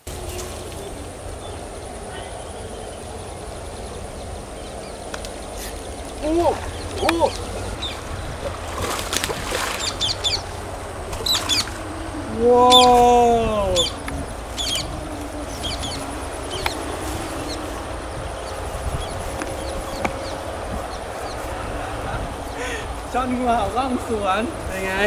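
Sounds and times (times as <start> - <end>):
small birds chirping: 0.0 - 25.0
loud drawn-out bird call: 11.2 - 20.6.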